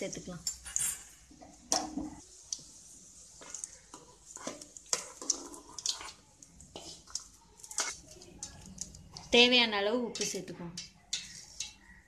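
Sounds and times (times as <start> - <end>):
spoon scraping and clinking: 0.4 - 1.2, 10.2 - 12.0.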